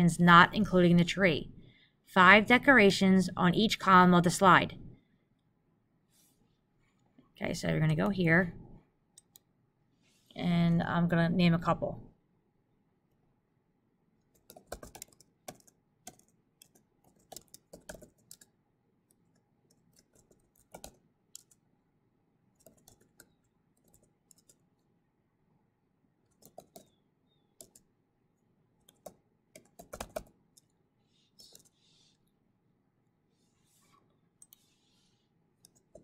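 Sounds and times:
typing on computer keyboard: 14.2 - 21.6, 22.6 - 24.7, 26.3 - 27.0, 27.6 - 27.9, 28.8 - 30.8, 31.4 - 31.8, 35.6 - 36.0.

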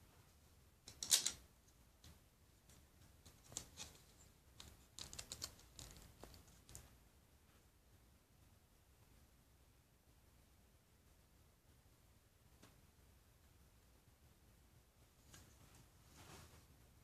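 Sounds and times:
plastic bricks clicking together: 0.9 - 1.4, 4.6 - 6.8.

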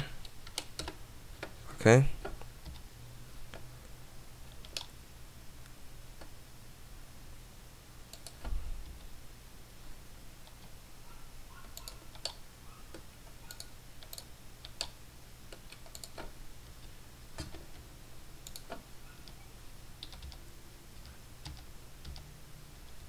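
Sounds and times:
computer keys clicking: 0.0 - 1.6, 4.5 - 5.0, 8.1 - 9.1, 10.4 - 10.8, 11.6 - 17.8, 18.4 - 19.4, 20.0 - 20.4, 21.0 - 22.3
low steady hum: 0.0 - 23.0.

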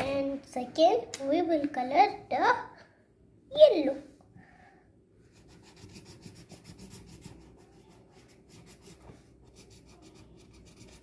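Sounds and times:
colouring pencil scratching on paper: 5.3 - 11.0.

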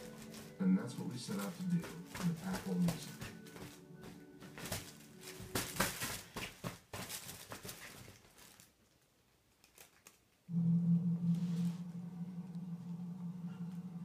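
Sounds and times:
fabric tunnel rustling: 0.0 - 9.0
steady low hum: 10.5 - 14.0.

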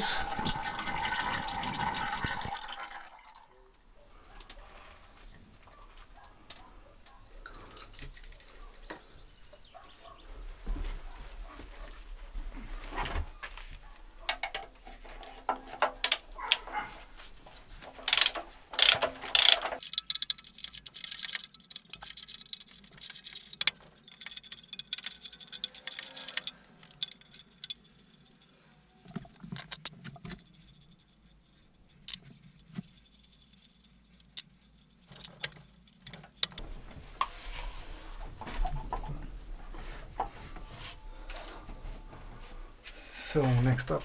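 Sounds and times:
metal tools clinking: 5.2 - 6.7, 18.0 - 36.6
ratchet wrench clicking: 18.1 - 27.8.

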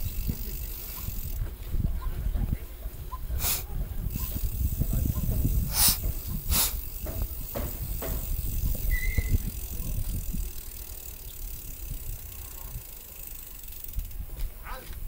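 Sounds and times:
bicycle rattling on concrete: 0.0 - 15.0
high squeak: 8.8 - 9.5.

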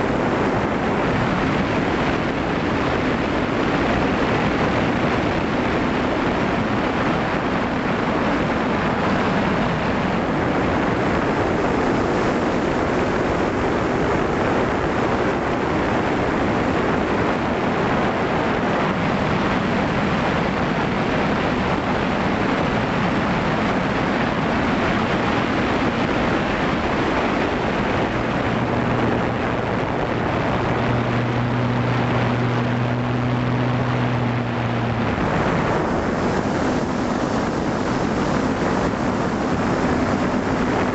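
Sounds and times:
wind rushing on microphone: 0.0 - 40.9
drone motors humming: 26.2 - 39.8.

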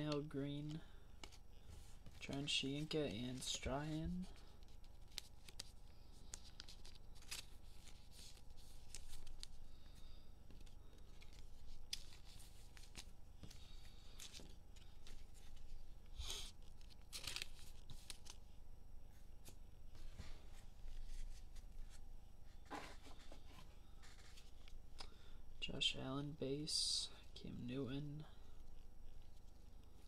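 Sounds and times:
cards rustling and flicking: 0.0 - 18.5
wrappers tearing and crinkling: 16.6 - 18.4.

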